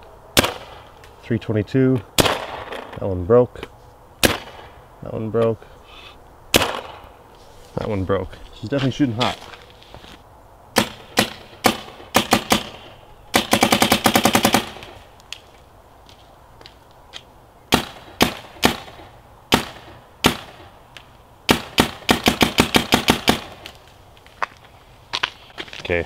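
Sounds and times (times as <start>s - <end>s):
paintball marker firing: 0.4s - 1.1s, 4.2s - 4.8s, 6.5s - 7.1s, 10.8s - 15.0s, 17.7s - 20.8s, 21.5s - 23.8s.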